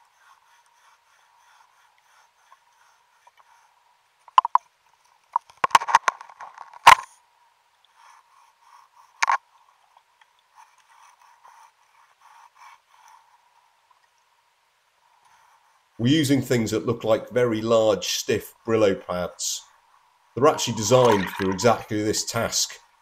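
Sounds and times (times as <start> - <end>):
sharp knocks and clicks: 4.3 - 4.7
underwater scratching strokes: 20.4 - 22.5.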